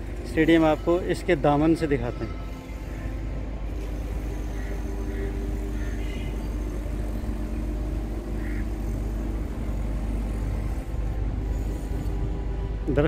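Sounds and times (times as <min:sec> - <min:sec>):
construction machinery humming: 0:00.0 - 0:13.0
harsh bird calls: 0:04.0 - 0:10.5.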